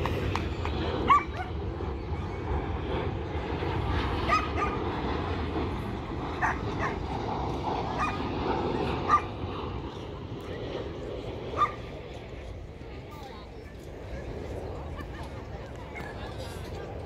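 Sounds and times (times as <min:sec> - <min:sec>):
steady low rumble: 0:00.0 - 0:17.0
dog yipping: 0:04.3 - 0:04.8.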